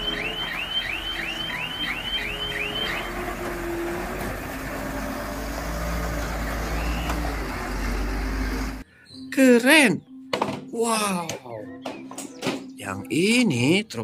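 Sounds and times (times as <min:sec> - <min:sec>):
truck warning alarm chirping: 0:00.0 - 0:04.7, 0:06.5 - 0:08.1, 0:09.1 - 0:10.8
diesel engine rumble: 0:00.0 - 0:08.8.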